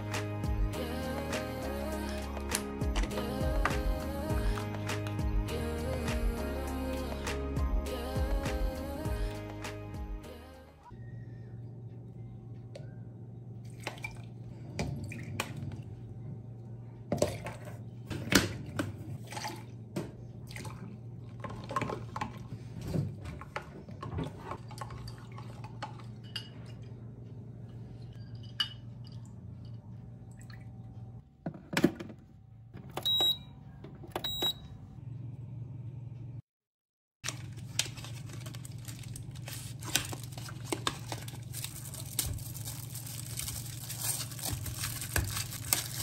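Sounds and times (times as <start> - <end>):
low steady hum: 10.3 - 36.4.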